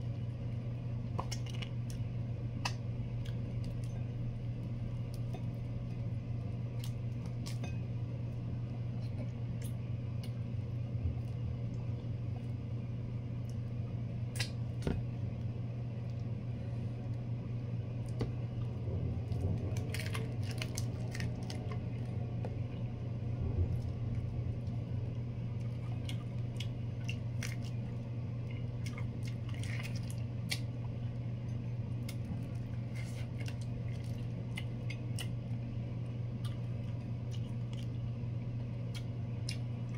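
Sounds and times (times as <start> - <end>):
steady low hum: 0.0 - 39.9
prawn shells crackling while eating: 19.3 - 22.2, 25.5 - 31.0, 32.0 - 35.7.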